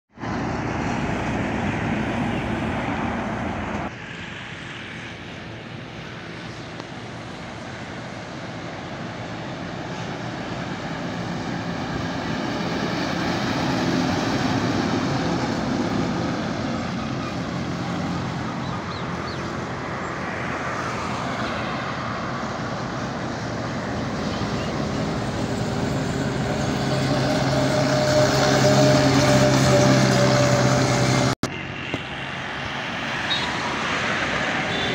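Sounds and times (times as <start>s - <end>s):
trucks driving past: 0.1s - 34.9s.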